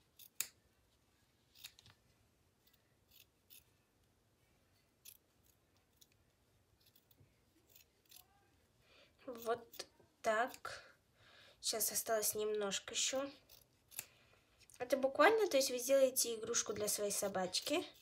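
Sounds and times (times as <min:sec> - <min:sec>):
scissors snipping fabric: 0:00.0 - 0:00.6, 0:01.5 - 0:01.9, 0:02.6 - 0:03.8, 0:05.0 - 0:08.4, 0:09.3 - 0:10.7, 0:13.0 - 0:14.1.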